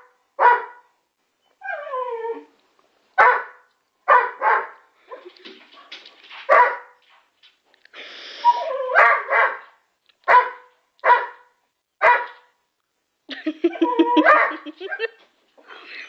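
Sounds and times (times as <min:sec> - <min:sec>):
dog barking sharply: 0:00.4 - 0:00.8, 0:03.2 - 0:04.8, 0:05.8 - 0:07.0, 0:09.0 - 0:09.7, 0:10.3 - 0:12.5
dog whining: 0:08.4 - 0:09.0.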